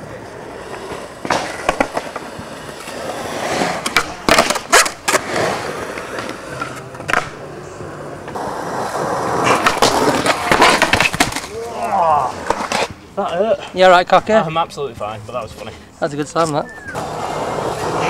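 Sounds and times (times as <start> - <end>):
skateboard rolling: 0.0 - 15.7, 16.4 - 18.0
skateboard clacks: 0.7 - 7.4, 9.3 - 11.6.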